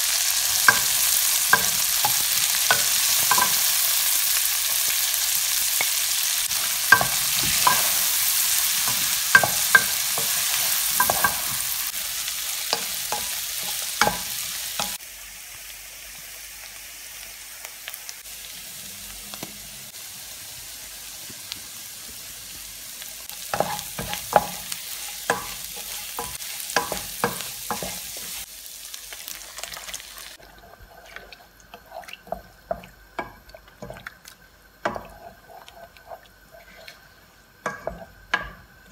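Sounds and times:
shrimp sizzling in oil: 0.0s - 38.9s.

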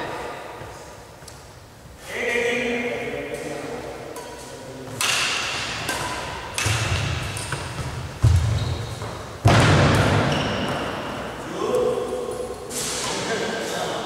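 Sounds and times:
badminton racket striking shuttlecock: 5.0s - 8.5s
feet thudding on wooden court: 6.6s - 11.0s.

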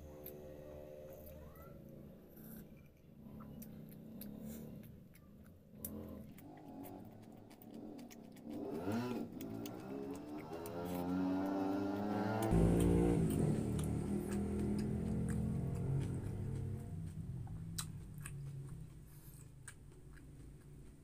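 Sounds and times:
chewing and lip-smacking: 0.1s - 21.0s.

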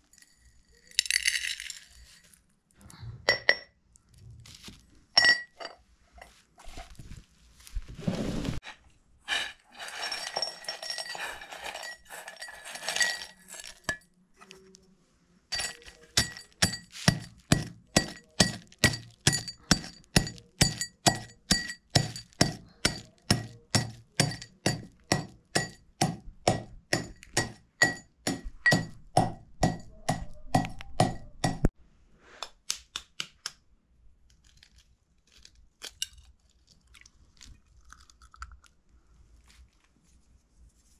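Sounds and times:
rustling kitchen things: 0.0s - 14.9s, 15.5s - 31.7s
utensil clinking against bowl: 9.3s - 14.0s, 15.5s - 31.7s.

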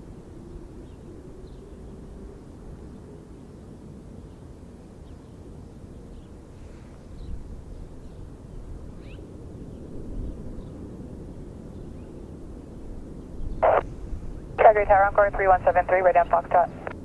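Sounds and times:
distant jet engines rumbling: 6.5s - 17.0s.

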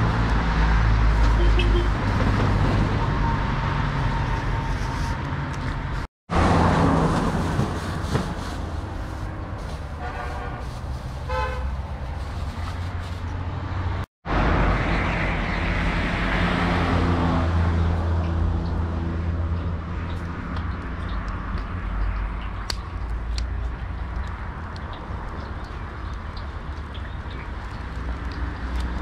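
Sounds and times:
low traffic rumble: 0.0s - 29.0s
vehicle horn: 1.3s - 2.0s, 10.0s - 11.8s.

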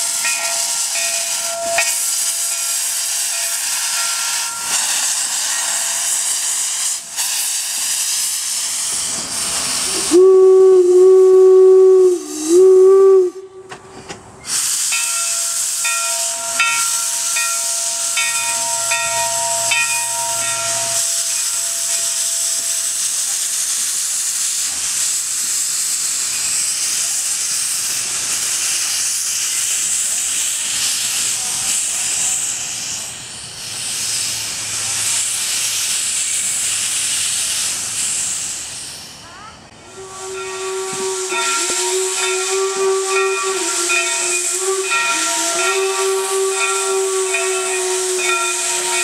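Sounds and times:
steam locomotive whistle blasts: 0.0s - 13.8s, 14.4s - 23.9s, 39.8s - 49.0s
steam hissing: 0.0s - 49.0s.

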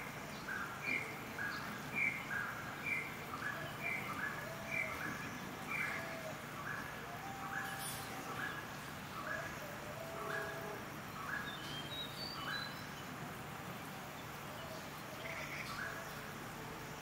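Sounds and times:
faint high chirps: 7.0s - 9.4s.

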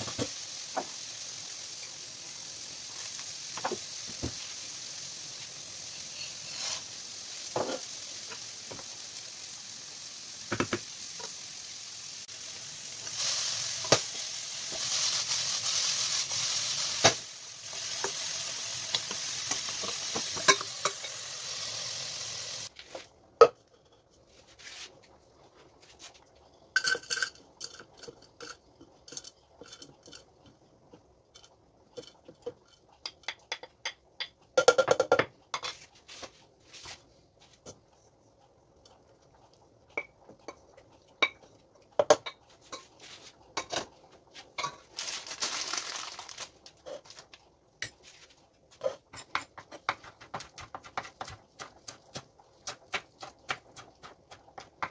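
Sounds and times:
tomatoes sizzling in a pan: 0.0s - 22.8s, 39.9s - 48.0s, 48.7s - 54.9s.

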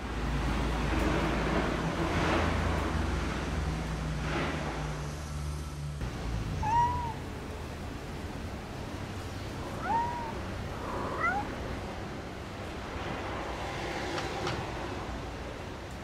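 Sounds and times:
cat meowing: 6.6s - 7.3s, 9.6s - 11.6s.

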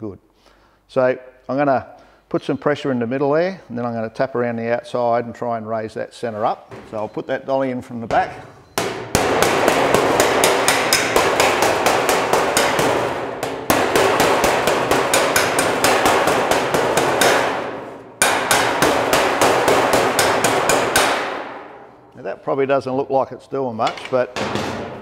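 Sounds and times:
metal slapper striking steel panel: 8.1s - 22.1s, 23.8s - 25.0s
taps on metal panel: 8.8s - 21.7s.

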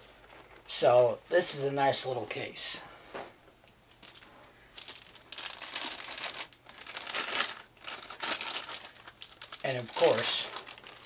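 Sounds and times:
plastic bag crinkling: 3.9s - 11.0s.

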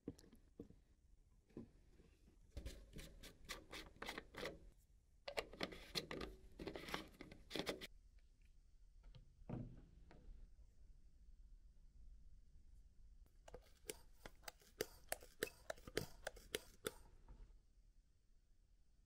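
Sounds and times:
faint scratching and clicking: 13.4s - 17.1s.

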